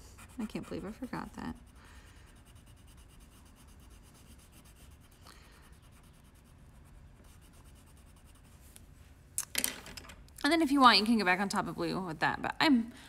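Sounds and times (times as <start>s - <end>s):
pencil scratching on paper: 0.0s - 8.7s.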